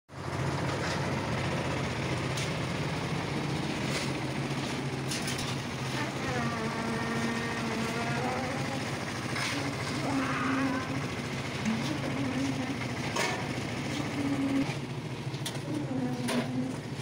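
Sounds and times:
concrete mixer engine running: 0.1s - 17.0s
aggregate and metal pans clattering: 5.1s - 5.6s.

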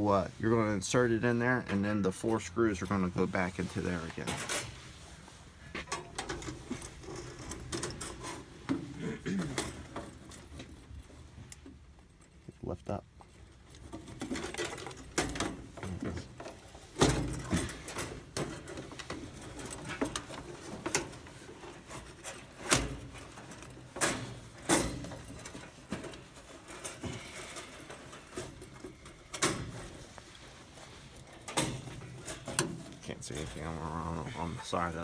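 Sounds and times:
knocks and clicks of wires handled: 5.7s - 33.8s.

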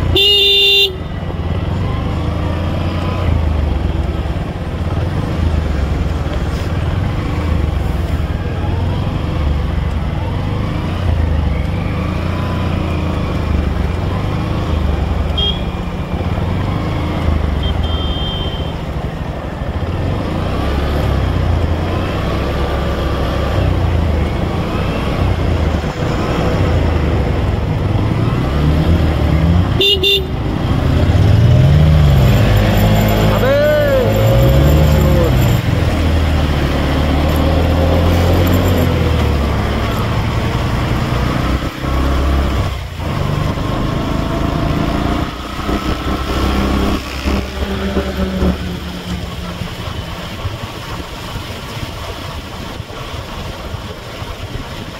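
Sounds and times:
water washing around wheels: 0.0s - 54.9s
vehicle horn toot: 0.1s - 1.0s, 15.4s - 15.8s, 17.6s - 18.8s, 29.8s - 30.4s.

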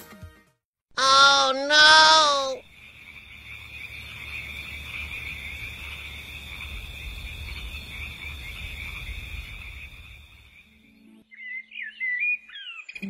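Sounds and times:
frogs calling: 1.0s - 10.8s
crickets chirring: 2.6s - 10.8s.

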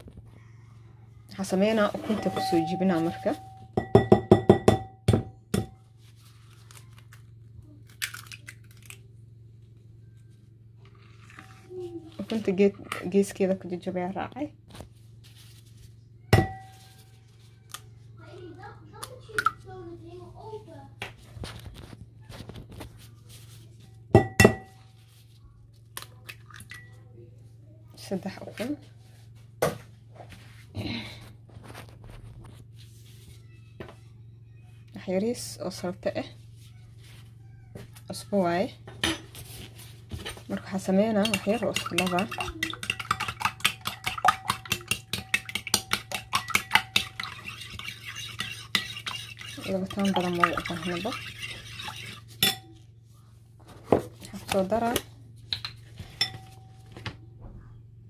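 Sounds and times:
bowl ringing: 1.9s - 5.8s, 16.4s - 17.1s, 56.2s - 57.0s
spoon clinking against ceramic bowl: 2.0s - 5.7s, 24.2s - 24.8s, 41.1s - 52.8s, 55.5s - 56.8s
egg knocking on ceramic bowl: 3.7s - 5.8s, 41.1s - 47.4s.

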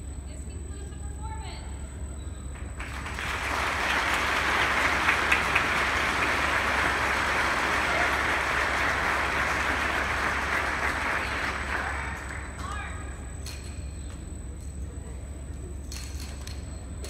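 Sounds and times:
audience applauding: 2.8s - 12.6s.

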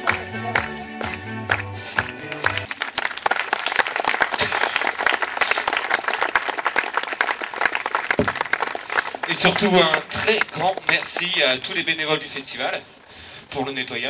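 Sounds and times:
music: 0.0s - 2.7s
crowd applauding: 0.0s - 11.9s.

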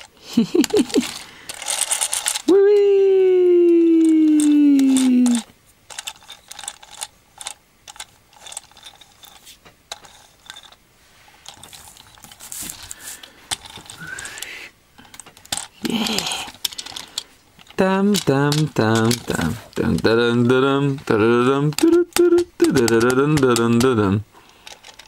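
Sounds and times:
plastic toy helicopter clicking: 0.0s - 2.5s, 4.0s - 9.0s, 13.5s - 25.0s.

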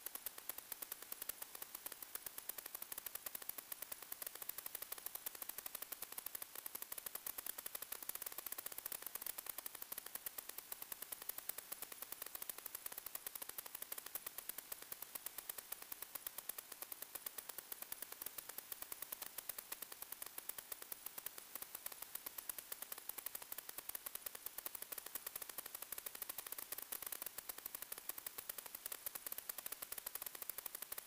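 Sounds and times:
rapid even ticking: 0.0s - 31.0s.

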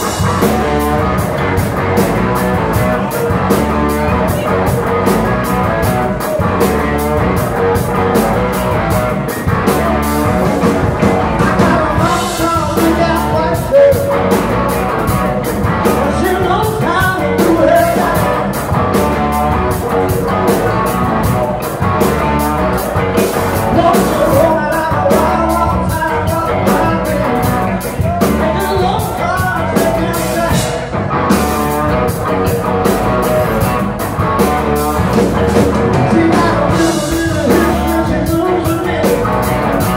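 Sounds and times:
bass guitar: 0.0s - 39.9s
drum kit steady beat: 0.0s - 39.9s
electric guitars: 0.0s - 39.9s
person singing: 2.3s - 21.7s, 23.6s - 31.0s, 35.5s - 39.9s.

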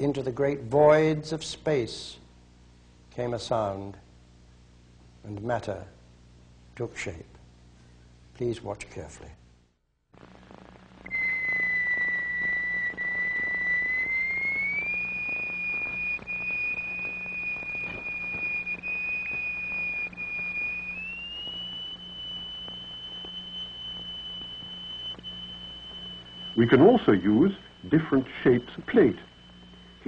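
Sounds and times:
faint low mains hum: 0.0s - 30.0s
whistle-like pure tone: 11.0s - 30.0s.

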